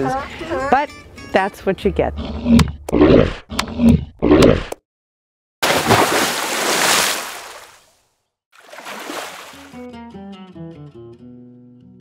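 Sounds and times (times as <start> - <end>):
water splashing: 5.6 - 8.0, 8.6 - 9.8.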